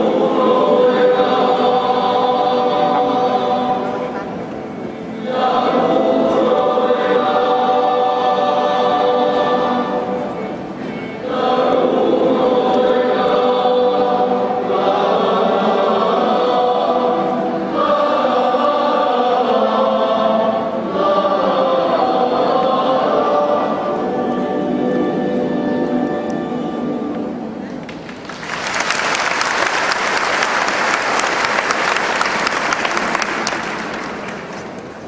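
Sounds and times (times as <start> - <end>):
men's choir singing: 0.0 - 27.6.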